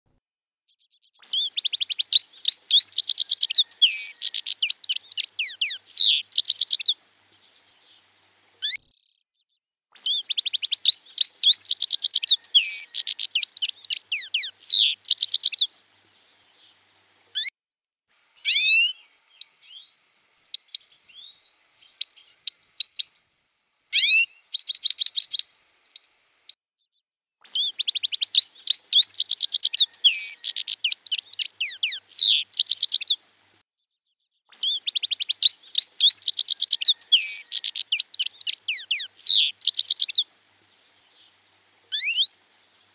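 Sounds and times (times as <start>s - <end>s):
finch twittering song: 0.8s - 9.2s, 10.0s - 17.5s, 18.4s - 23.2s, 24.0s - 26.1s, 27.4s - 33.2s, 34.5s - 42.9s.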